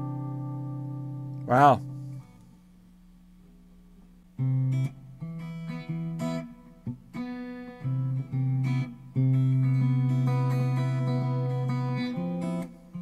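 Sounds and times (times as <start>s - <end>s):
electric guitar strummed chords: 0.0s - 2.4s, 4.4s - 13.0s
faint hum: 0.0s - 13.0s.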